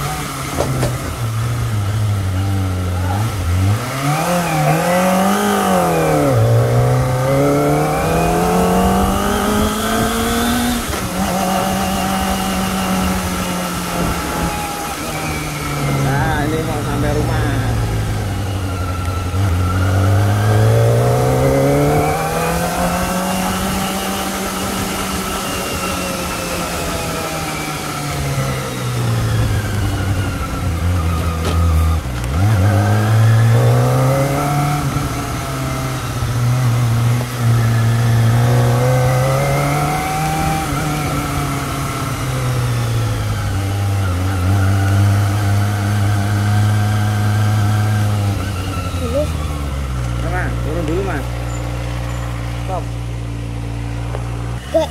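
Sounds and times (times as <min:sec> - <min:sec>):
motorcycle engine revving: 0:00.0 - 0:54.9.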